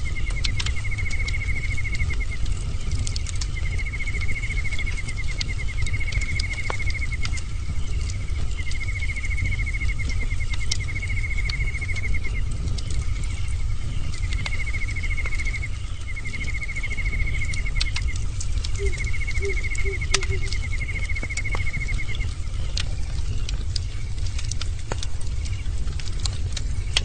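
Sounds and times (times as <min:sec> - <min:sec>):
bonfire crackling and popping: 0:00.0 - 0:27.0
animal high-pitched trill: 0:18.8 - 0:20.6
short lower animal calls: 0:18.8 - 0:20.7.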